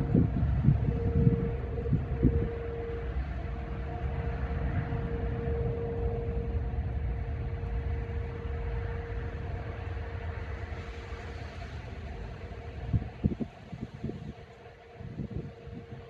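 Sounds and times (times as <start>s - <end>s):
distant warning siren: 0.0s - 16.0s
low rumble: 0.0s - 16.0s.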